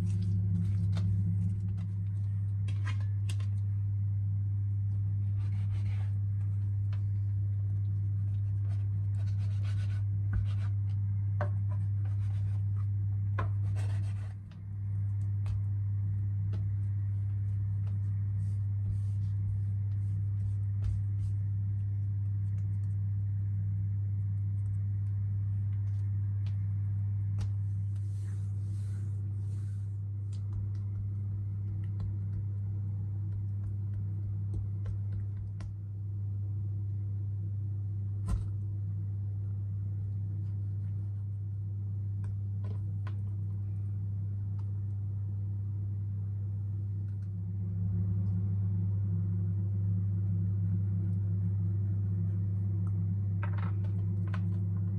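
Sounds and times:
hands rolling dough on countertop: 0.0 - 3.7, 5.2 - 23.0, 25.7 - 35.8
steady low hum: 0.0 - 54.9.

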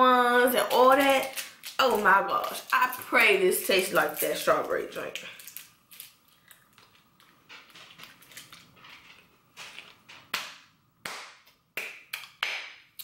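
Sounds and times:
hard candy crunching: 0.5 - 10.6.

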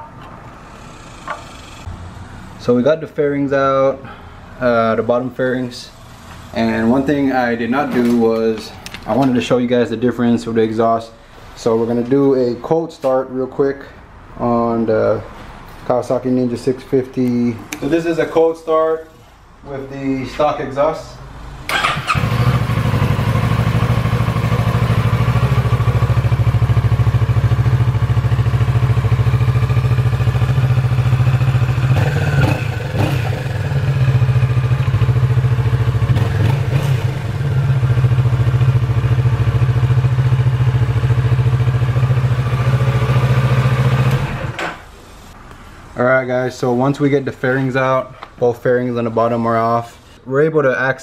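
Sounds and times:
motorcycle engine starting and idling: 21.7 - 44.8.

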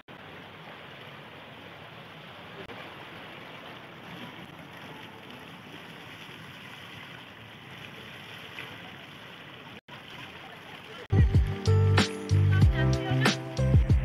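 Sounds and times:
fountain water splashing into pool: 0.0 - 12.0.

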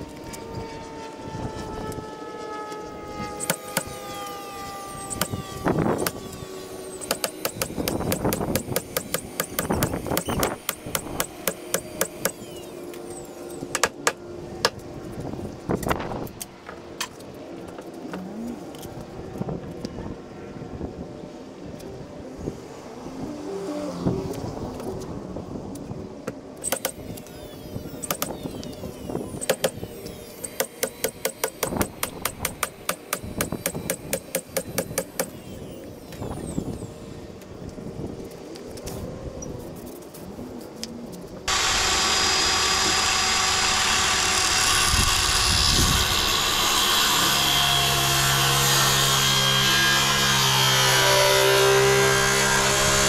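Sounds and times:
nailer firing into plywood: 3.4 - 4.0, 7.0 - 12.4, 13.7 - 14.2, 29.4 - 29.8, 30.4 - 35.4.

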